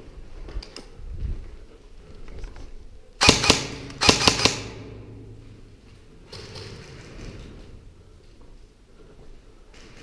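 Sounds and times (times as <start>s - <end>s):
airsoft gun shots: 3.2s - 4.9s.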